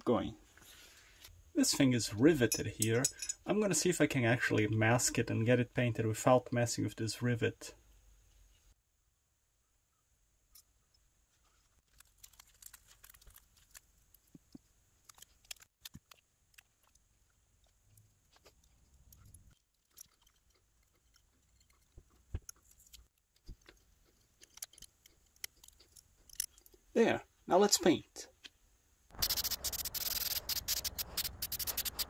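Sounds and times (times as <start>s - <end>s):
faint clicks and rustles of tape: 11.3s - 27.0s, 29.2s - 32.0s.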